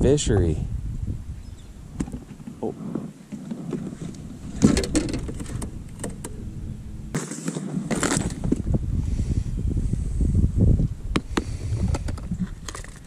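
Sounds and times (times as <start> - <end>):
wind rumble on microphone: 0.0 - 13.0
fishing gear clattering on deck: 3.4 - 6.3.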